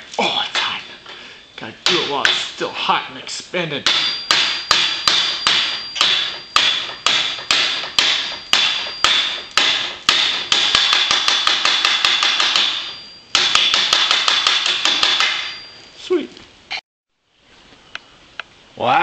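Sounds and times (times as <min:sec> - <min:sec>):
hammer ringing on metal: 0:01.8 - 0:02.6, 0:03.8 - 0:15.8.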